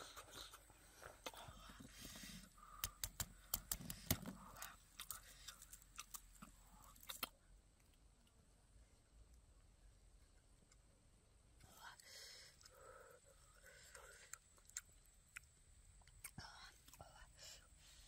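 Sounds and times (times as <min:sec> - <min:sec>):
crunching and tearing food: 0:02.6 - 0:08.4.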